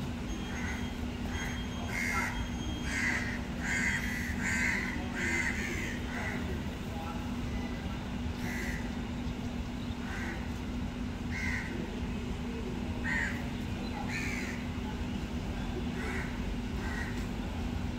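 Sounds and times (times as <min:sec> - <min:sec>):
steady low hum: 0:00.0 - 0:17.9
crow cawing: 0:00.5 - 0:06.4, 0:08.4 - 0:08.9, 0:10.0 - 0:10.4, 0:11.3 - 0:11.8, 0:13.0 - 0:13.4, 0:14.1 - 0:14.6, 0:16.0 - 0:17.2.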